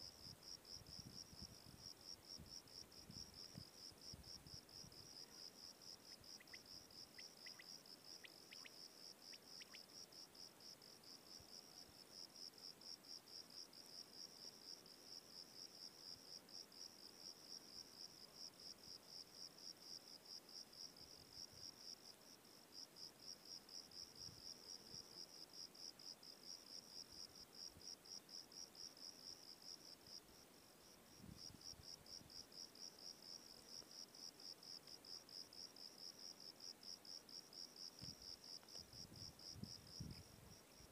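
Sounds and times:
faint high-pitched chirping call: 6.0s - 10.0s.

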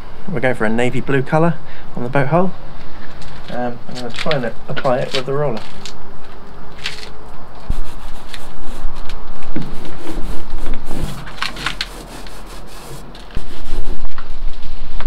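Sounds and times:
paint roller rubbing on wood: 7.7s - 14.2s.

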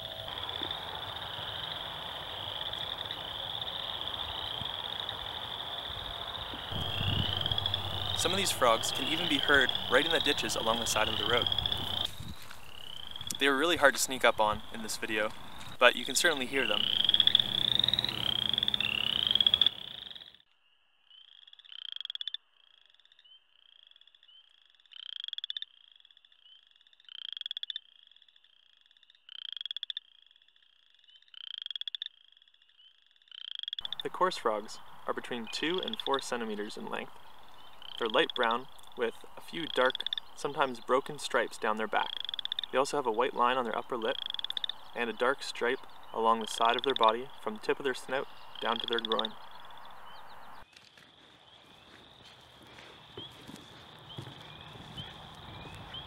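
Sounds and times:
frogs trilling: 0.0s - 56.0s
low rumble: 6.7s - 12.1s.

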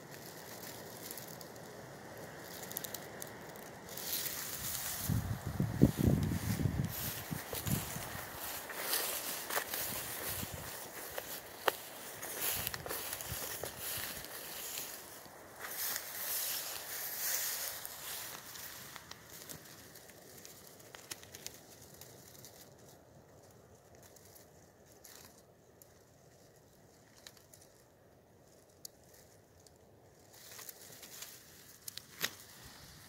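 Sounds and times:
footsteps on dry grass: 0.0s - 22.7s.

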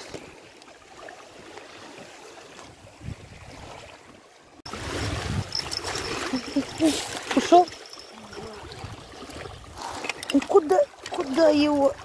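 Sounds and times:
water lapping at shore: 0.0s - 12.0s
wind buffeting microphone: 2.7s - 3.9s, 4.7s - 12.0s.

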